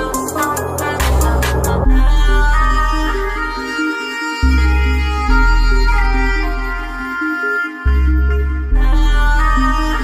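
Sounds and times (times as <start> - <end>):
heavy bass line: 0.0 - 3.4.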